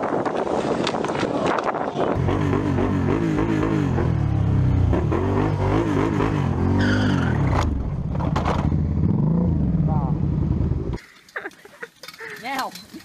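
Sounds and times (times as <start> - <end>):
tyres skidding squeal: 6.5 - 7.8.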